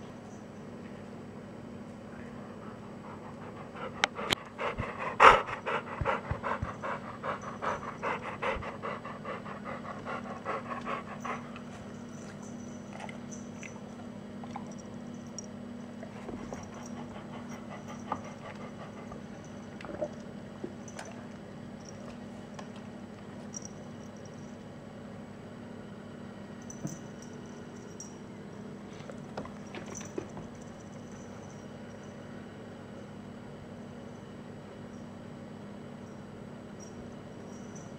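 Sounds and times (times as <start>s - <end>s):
steady low hum: 0.0s - 37.9s
dog panting: 2.7s - 11.9s, 16.2s - 19.6s.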